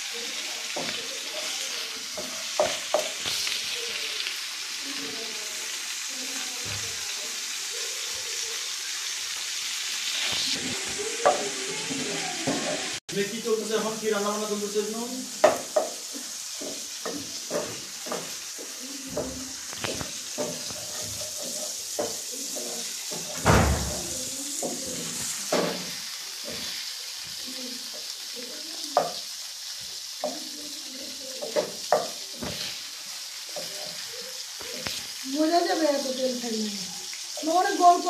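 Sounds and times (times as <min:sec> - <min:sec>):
chicken sizzling in a pan: 0:00.0 - 0:38.0
metal spatula scraping pan: 0:16.6 - 0:23.4.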